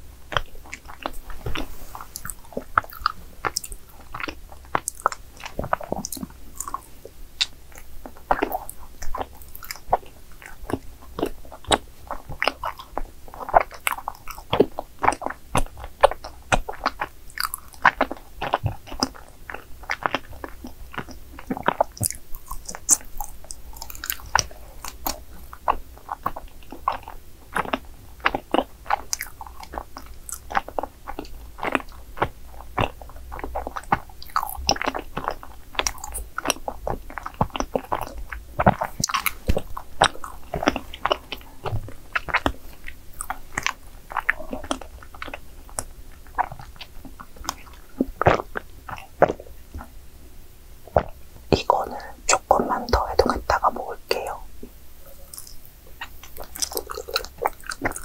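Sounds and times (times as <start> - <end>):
chewing with sticky mouth clicks: 0.3 - 49.9, 50.9 - 58.0.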